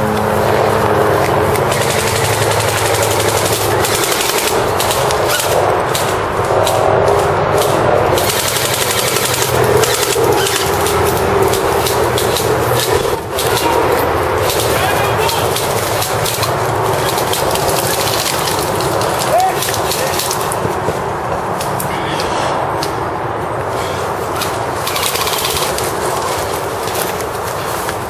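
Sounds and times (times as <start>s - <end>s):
airsoft guns firing full-auto: 1.7s - 5.6s, 8.2s - 11.0s, 24.8s - 25.8s.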